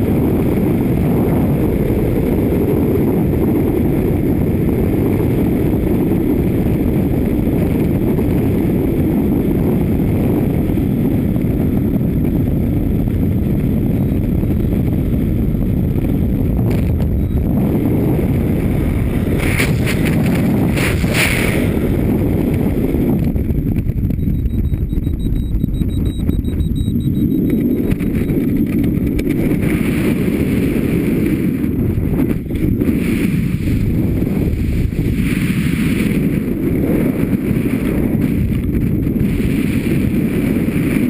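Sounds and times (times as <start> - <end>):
wind rushing over microphone: 0.0 - 41.0
parachute flapping: 19.0 - 22.2.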